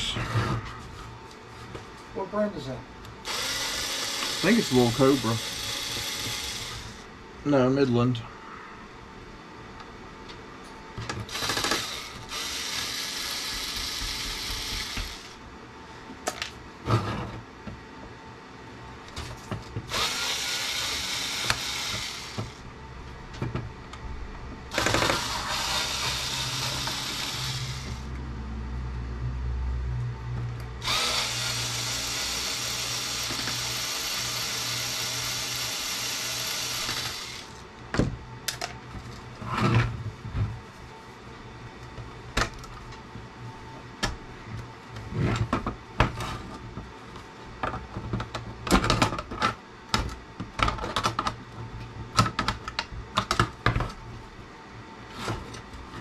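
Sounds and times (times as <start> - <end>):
electric screwdriver running: 3.2 - 7.0, 11.3 - 15.4, 19.9 - 22.6, 24.7 - 28.1, 30.8 - 37.6.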